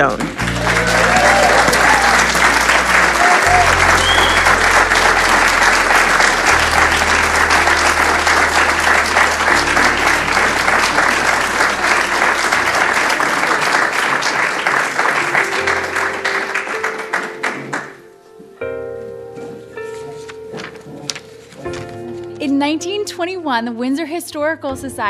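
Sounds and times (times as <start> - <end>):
audience applauding: 0.0 - 18.2
background music with low notes: 0.0 - 25.0.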